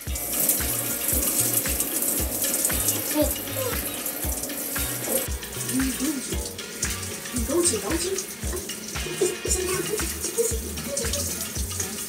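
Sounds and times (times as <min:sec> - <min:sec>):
music with bass beat: 0:00.0 - 0:12.0
running water hiss: 0:00.0 - 0:12.0.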